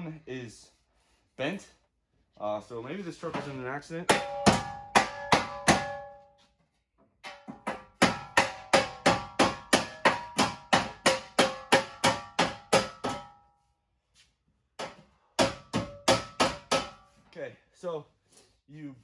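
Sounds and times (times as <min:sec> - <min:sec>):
hammer striking steel: 0:04.1 - 0:06.2, 0:07.2 - 0:13.5, 0:14.8 - 0:17.1.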